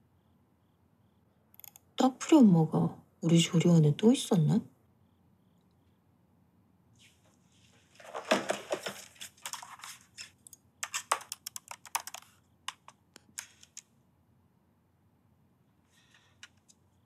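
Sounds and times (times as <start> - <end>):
laptop keyboard typing: 1.6 - 1.9, 8.2 - 13.9.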